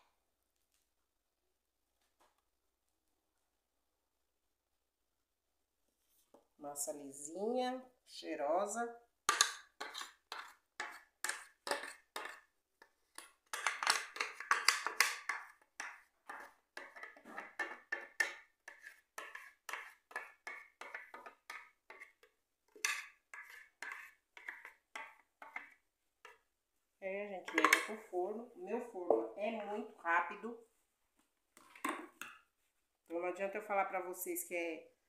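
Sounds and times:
spatula scraping plastic jar: 9.4 - 12.5, 13.5 - 18.0, 18.6 - 26.4.

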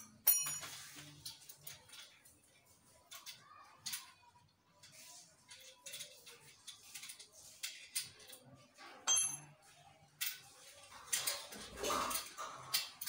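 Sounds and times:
short ringing metal clink: 9.1 - 9.5.

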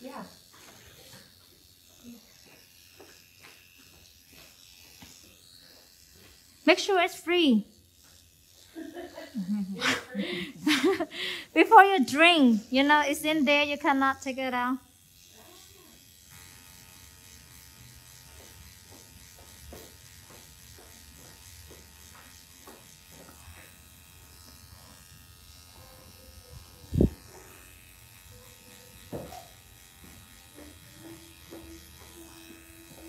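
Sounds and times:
tattoo machine buzzing: 0.0 - 33.0.

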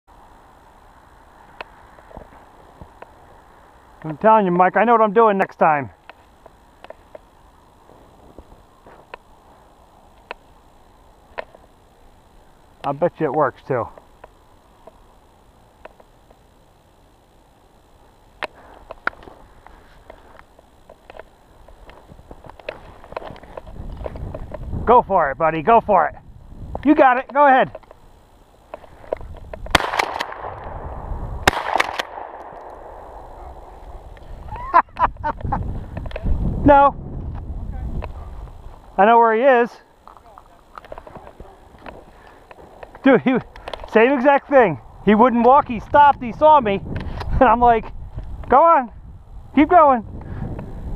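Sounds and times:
sharp cracks and echo: 29.6 - 33.9
shotgun shots: 29.7 - 30.8, 31.4 - 33.3.

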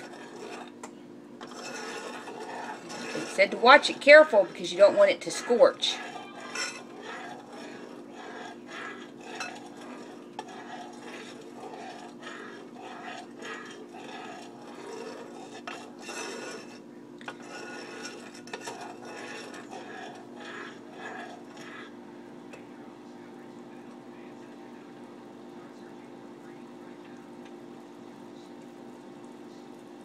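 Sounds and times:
utensil scraping and clinking in saucepan: 0.0 - 0.8, 1.4 - 22.6
steady low hum: 0.0 - 30.0.

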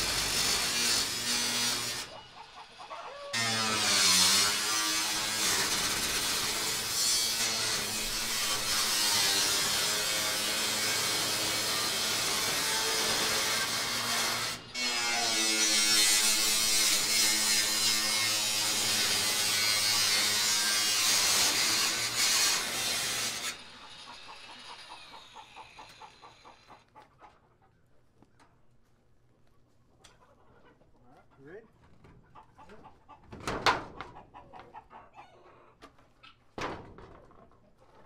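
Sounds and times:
power saw cutting sheet metal: 0.0 - 2.6, 3.3 - 26.7.

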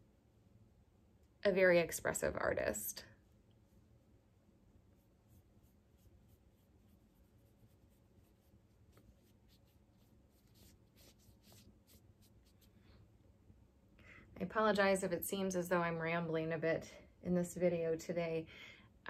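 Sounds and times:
brush strokes on paper: 3.1 - 13.2.

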